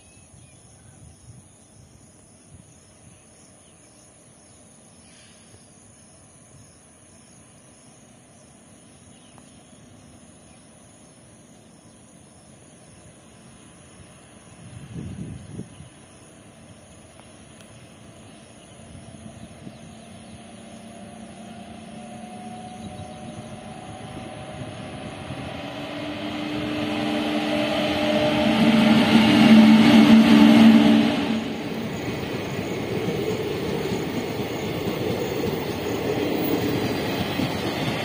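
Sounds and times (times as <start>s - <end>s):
electric locomotive hum: 8.6s - 38.0s
train wheels rumbling: 15.9s - 38.0s.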